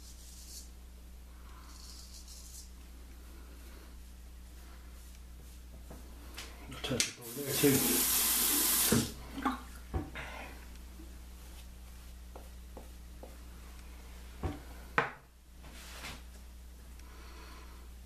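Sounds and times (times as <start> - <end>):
tap running water: 7.2 - 10.1.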